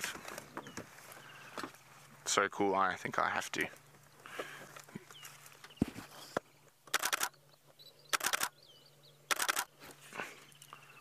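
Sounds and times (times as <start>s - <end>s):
camera shutter bursts: 6.9s - 7.4s, 8.1s - 8.6s, 9.3s - 9.7s.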